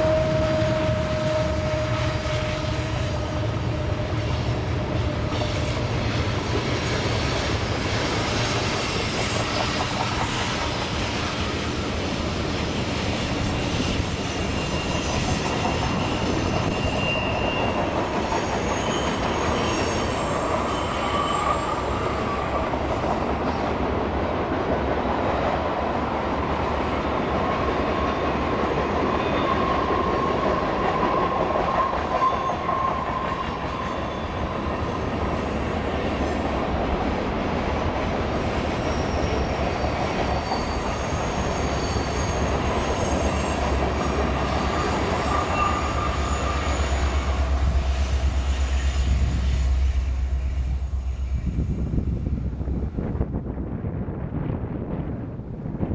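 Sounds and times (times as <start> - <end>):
freight train rolling: 0.0 - 55.9
steel wheels squealing: 12.5 - 23.6, 29.0 - 37.7, 38.4 - 52.1
wind buffeting microphone: 50.6 - 55.9.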